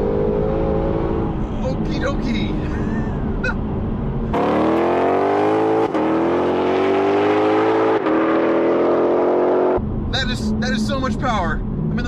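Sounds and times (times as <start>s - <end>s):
car engine at full throttle: 0.0s - 12.0s.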